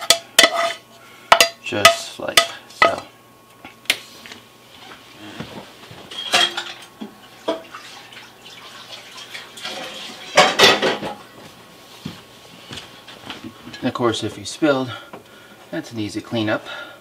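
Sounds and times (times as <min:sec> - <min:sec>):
frying pan and utensils clattering: 0:00.0 - 0:03.0, 0:06.1 - 0:07.7, 0:09.5 - 0:11.2.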